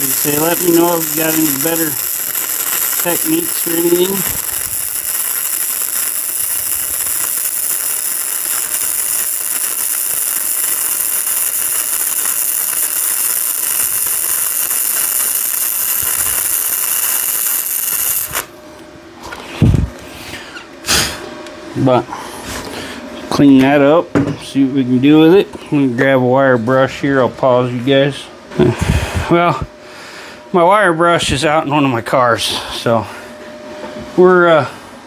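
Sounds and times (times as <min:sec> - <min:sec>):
welding arc hissing: 0:00.0 - 0:18.5.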